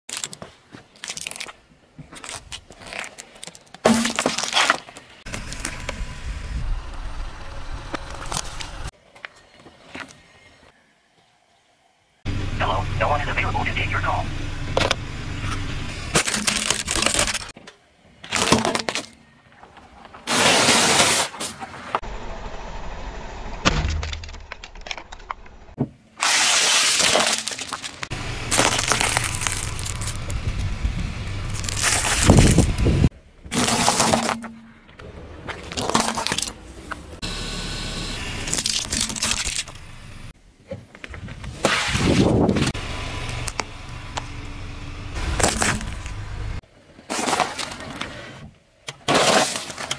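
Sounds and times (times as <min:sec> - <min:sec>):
snack balls crunching under tyre: 0:27.0 - 0:34.4, 0:38.4 - 0:39.8, 0:45.2 - 0:46.2.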